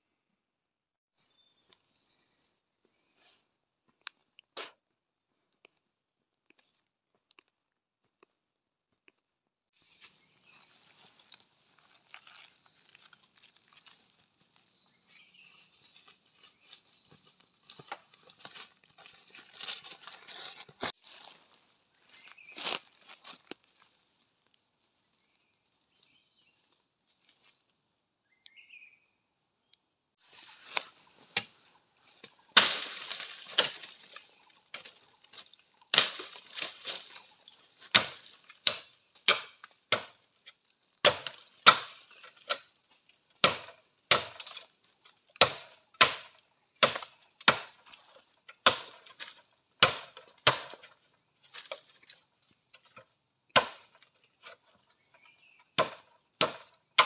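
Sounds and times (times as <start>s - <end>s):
machete chopping bamboo: 32.2s - 37.2s, 37.8s - 42.7s, 43.4s - 44.7s, 45.3s - 52.0s, 53.5s - 54.6s, 55.7s - 57.0s.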